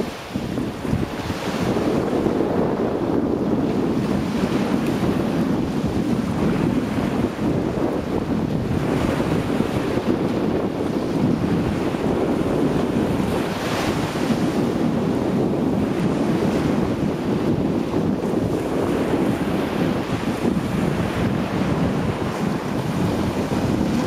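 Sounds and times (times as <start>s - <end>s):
small waves washing on sand: 0.0s - 24.0s
wind buffeting microphone: 0.0s - 24.0s.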